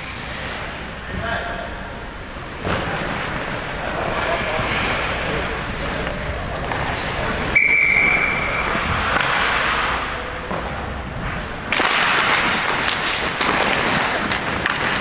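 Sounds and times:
referee's whistle: 7.5 - 8.6.

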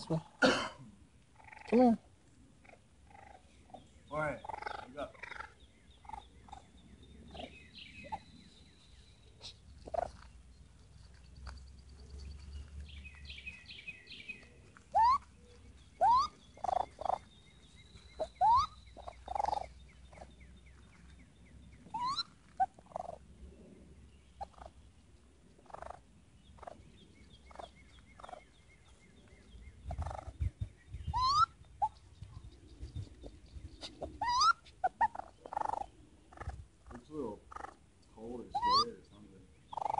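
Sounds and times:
faint birdsong: 0.0 - 39.9
baby raccoon chirping: 1.4 - 2.0, 2.6 - 8.6, 9.4 - 10.3, 13.2 - 15.3, 15.9 - 20.3, 21.8 - 23.2, 24.4 - 24.8, 25.6 - 28.9, 29.8 - 39.0, 39.6 - 39.9.

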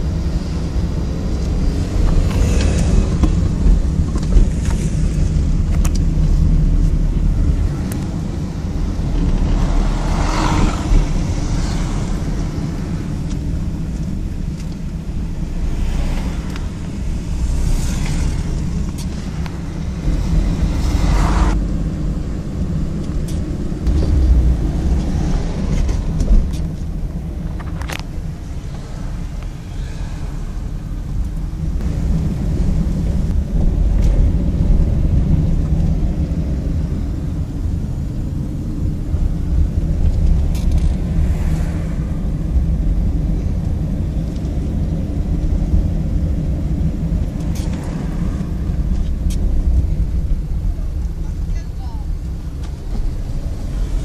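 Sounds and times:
car engine and tyre rumble: 0.0 - 54.0
passing whooshes: 1.1 - 37.3, 39.0 - 44.3.

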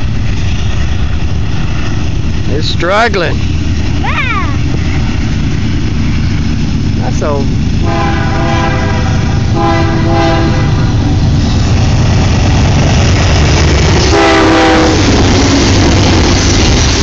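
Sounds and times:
diesel locomotive engines rumbling: 0.0 - 17.0
locomotive horn: 7.8 - 11.0, 14.1 - 15.2.

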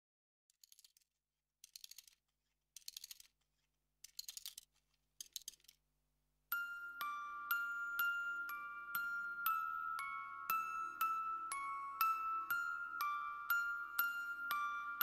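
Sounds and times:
rapid crisp clicking: 0.5 - 5.8
music with bell-like notes: 6.5 - 15.0.

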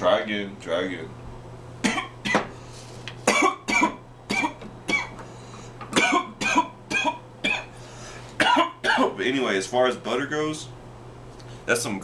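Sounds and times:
man coughing hard: 1.8 - 2.5, 3.2 - 5.2, 5.9 - 7.7, 8.4 - 9.2.

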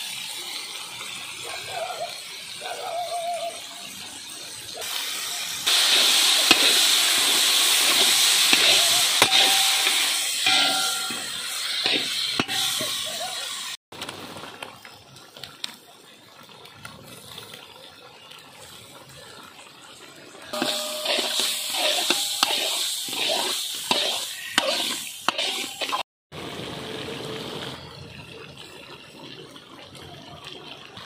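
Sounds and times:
stew bubbling and sizzling: 0.0 - 31.0
metal spatula scraping pan: 5.7 - 13.7, 20.6 - 26.0.

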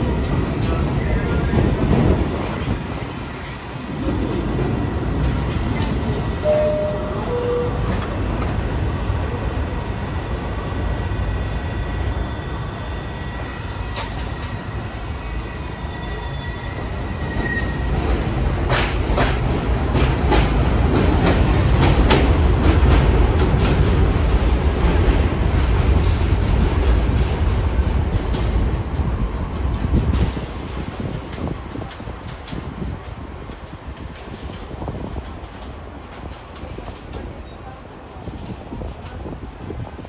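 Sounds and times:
subway train rumbling: 0.0 - 40.0
two-note falling chime: 6.4 - 7.8.

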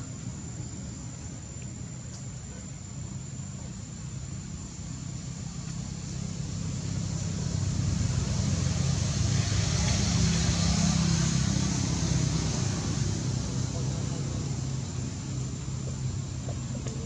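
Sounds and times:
vehicle engine running: 3.1 - 17.0.

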